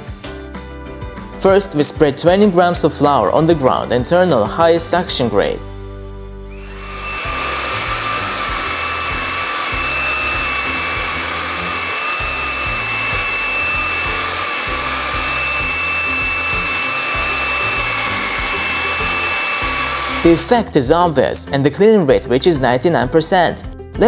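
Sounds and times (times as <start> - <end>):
stick vacuum running: 6.5 - 20.7
vacuum brush on hard floor: 6.6 - 20.6.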